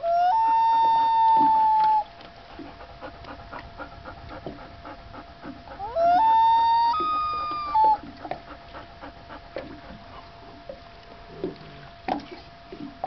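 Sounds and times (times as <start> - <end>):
loon wailing: 0.0 - 2.1, 5.8 - 8.0.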